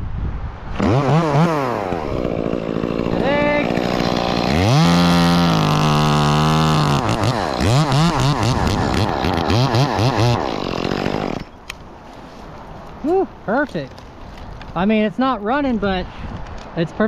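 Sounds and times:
chainsaw cutting wood: 0.7s - 11.8s.

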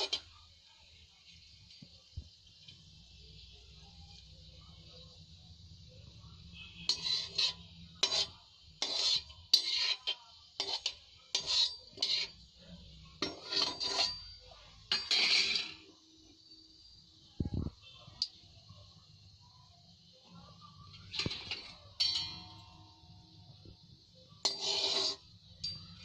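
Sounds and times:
metal spoon scraping metal pan: 0.0s - 0.3s, 6.5s - 15.9s, 20.9s - 23.6s, 24.4s - 26.0s
spices frying in oil: 0.0s - 26.0s.

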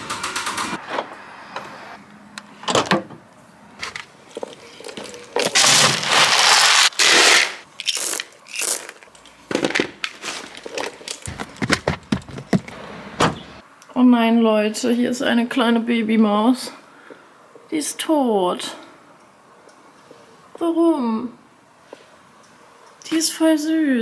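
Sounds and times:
scattered clicks and knocks: 0.0s - 0.8s, 10.7s - 12.8s
feed pellets pouring into bucket: 5.6s - 8.9s.

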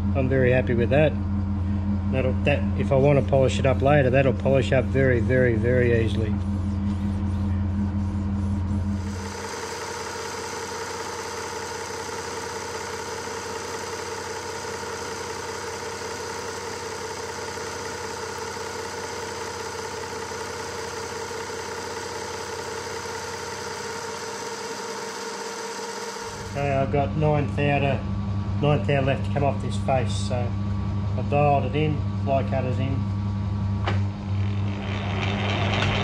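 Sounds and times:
milling machine cutter whine: 0.0s - 18.6s, 20.7s - 30.6s, 33.9s - 36.0s.

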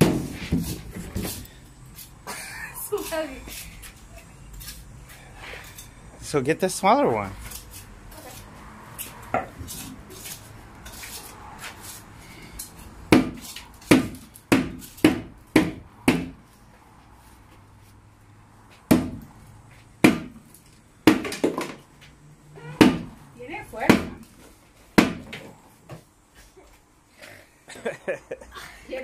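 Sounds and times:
hammer striking wood: 0.0s - 0.6s, 13.1s - 16.4s, 18.9s - 19.2s, 20.0s - 20.4s, 21.1s - 21.8s, 22.8s - 23.1s, 23.9s - 24.2s, 25.0s - 25.4s.

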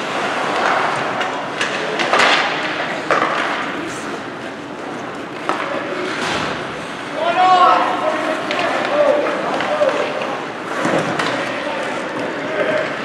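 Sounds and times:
skates scraping on ice: 7.8s - 13.0s.

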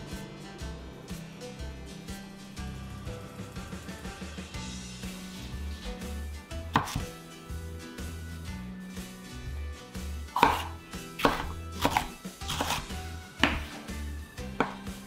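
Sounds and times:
light background music: 0.0s - 15.0s
knife chopping on wooden board: 6.7s - 7.2s, 10.3s - 15.0s.

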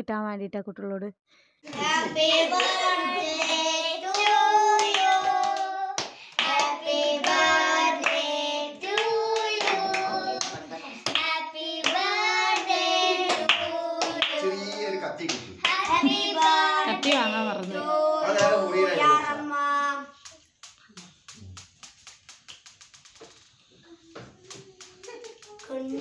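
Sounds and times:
hands clapping: 1.7s - 7.4s, 8.0s - 8.2s, 8.9s - 18.6s, 20.2s - 23.5s, 24.4s - 26.0s
people singing together: 1.7s - 19.4s.

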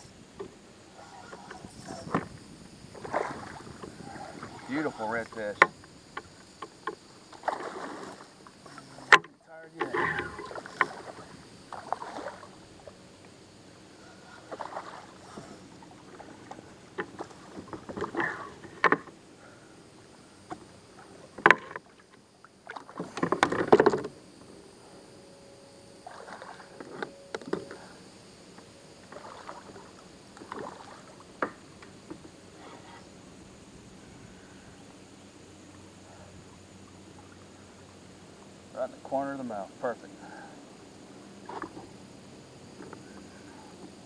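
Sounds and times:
water splashing: 0.9s - 13.0s, 14.0s - 19.1s, 20.5s - 24.0s, 26.0s - 27.0s, 29.0s - 32.8s
sharp knocks on a kayak: 21.4s - 21.8s, 23.0s - 24.1s.

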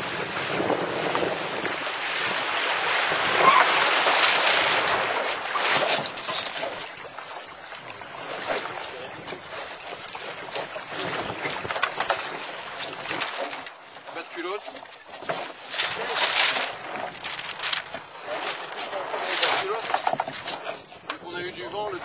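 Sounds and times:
wind on microphone: 0.0s - 6.2s, 10.9s - 11.9s
water rushing past hull: 0.0s - 22.0s
knocks and rattles of rigging: 0.5s - 22.0s.

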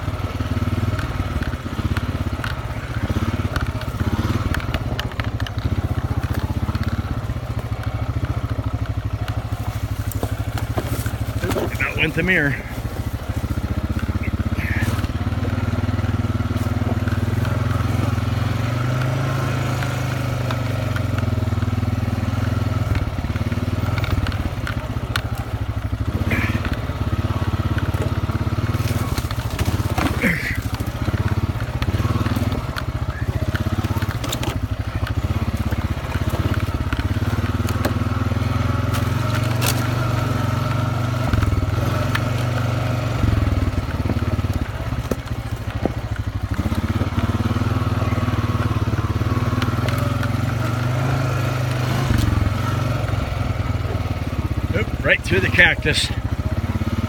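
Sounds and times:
atv engine running at low revs: 0.0s - 57.0s
tyres crunching on stone: 0.6s - 53.0s.

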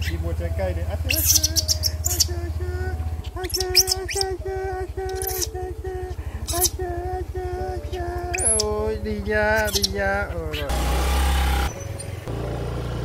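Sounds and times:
engine idling: 0.0s - 13.0s
baby monkey crying: 1.0s - 2.4s, 3.2s - 4.4s, 5.0s - 5.6s, 6.2s - 6.8s, 7.8s - 10.7s.

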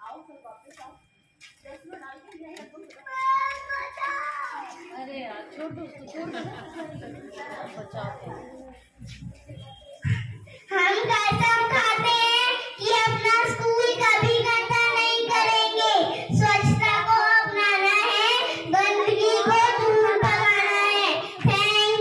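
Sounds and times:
girl singing into microphone: 7.6s - 22.0s
children singing together: 10.1s - 22.0s.

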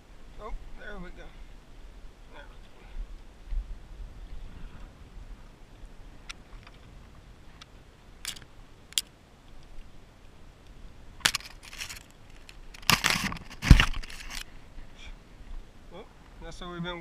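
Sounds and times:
rustling and scraping: 11.2s - 15.0s.

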